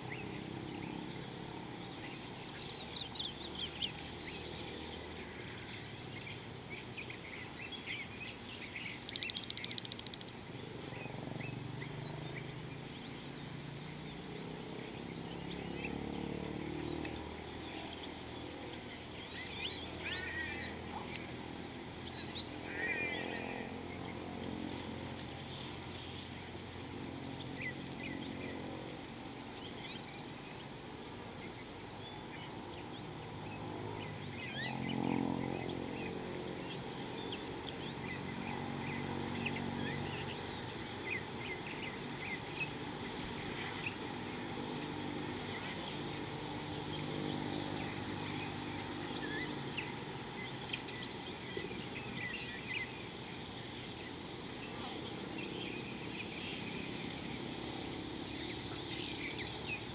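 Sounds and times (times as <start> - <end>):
higher bird calls: 0.0 - 16.8, 17.4 - 26.7
small birds chirping: 0.0 - 59.9
steady low hum: 0.0 - 59.9.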